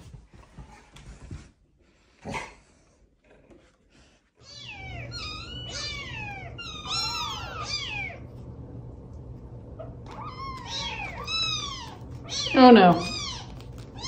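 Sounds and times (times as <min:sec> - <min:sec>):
kittens mewing: 0:04.4 - 0:08.3, 0:09.8 - 0:14.0.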